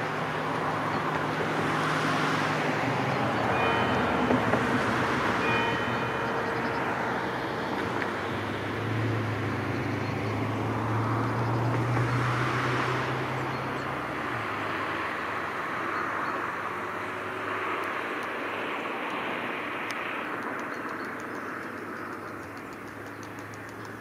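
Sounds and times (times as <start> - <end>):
low engine drone: 0.0 - 14.5
distant traffic rush: 0.0 - 24.0.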